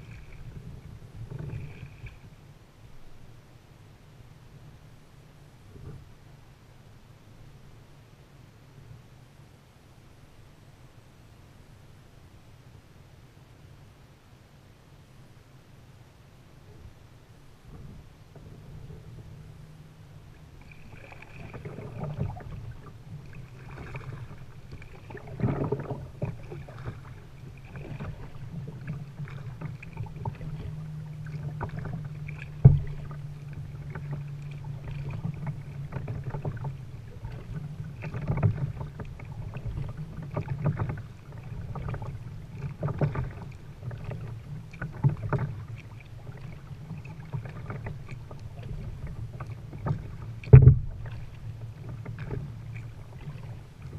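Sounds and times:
paddle strokes splashing water: 0:00.0 - 0:03.2, 0:16.8 - 0:53.9.

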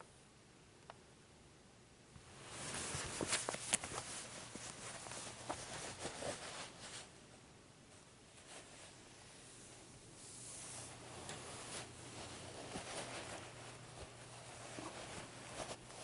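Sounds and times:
boots and jeans rustling on blanket: 0:02.4 - 0:07.1, 0:10.4 - 0:16.0.

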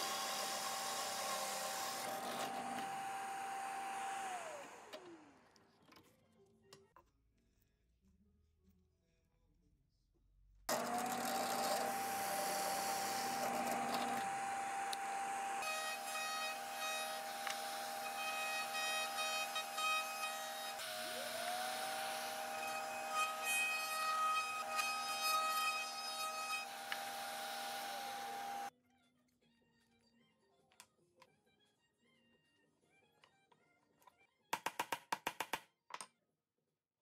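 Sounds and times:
drill press boring into wood: 0:00.0 - 0:05.6, 0:10.7 - 0:28.7
router shaping wood: 0:00.0 - 0:05.6, 0:10.7 - 0:28.7.

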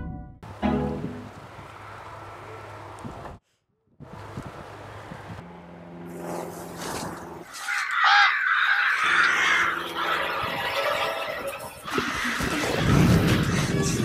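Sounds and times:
crows cawing: 0:07.5 - 0:10.3, 0:11.8 - 0:12.7.

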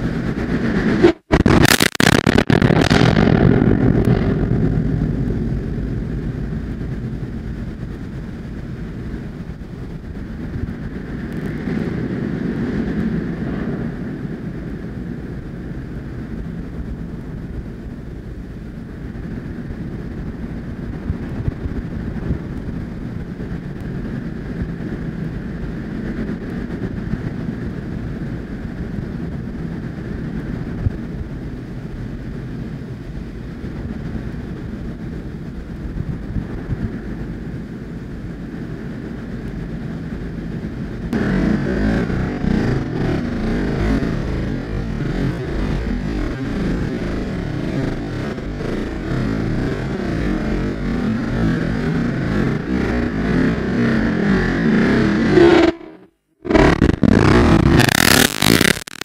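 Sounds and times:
wind buffeting microphone: 0:00.0 - 0:01.6, 0:02.4 - 0:58.6.

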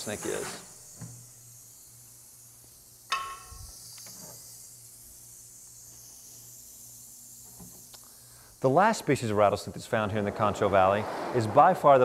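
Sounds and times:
rattlesnake rattling: 0:00.0 - 0:11.0
sharp knock with ring: 0:03.1 - 0:03.6.

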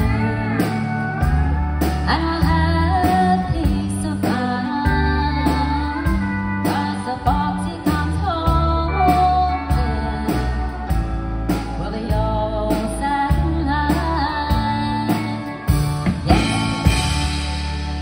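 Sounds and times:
woman singing: 0:00.0 - 0:15.8
live country band playing: 0:00.0 - 0:18.0
sharp drum hits: 0:15.8 - 0:18.0.

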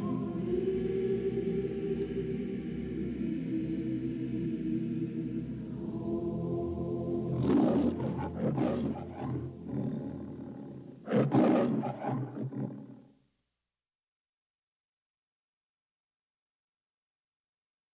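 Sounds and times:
lion roaring: 0:07.3 - 0:13.1.

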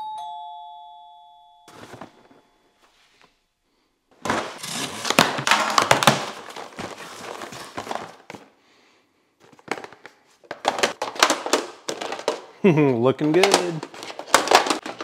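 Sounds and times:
cardboard box being opened: 0:04.2 - 0:08.4
plastic containers clacking: 0:04.2 - 0:08.5, 0:09.4 - 0:15.0
rustling: 0:04.2 - 0:08.5.

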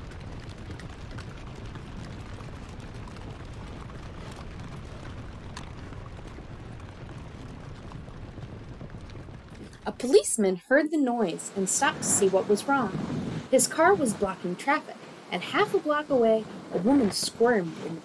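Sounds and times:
steady low rushing noise: 0:11.6 - 0:15.5.

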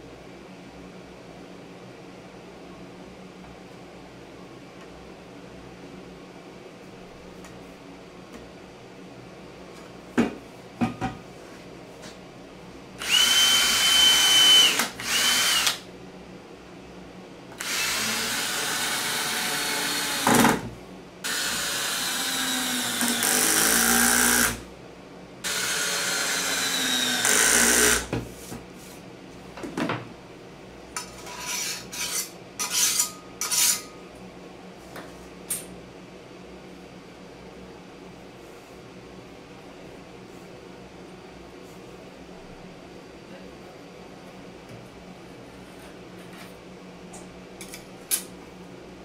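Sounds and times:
drill drilling through metal: 0:13.0 - 0:15.8, 0:17.6 - 0:20.4, 0:21.3 - 0:24.6, 0:25.5 - 0:28.1
drill trigger bursts: 0:13.0 - 0:15.8, 0:17.6 - 0:20.3, 0:21.3 - 0:24.6, 0:25.4 - 0:28.1.

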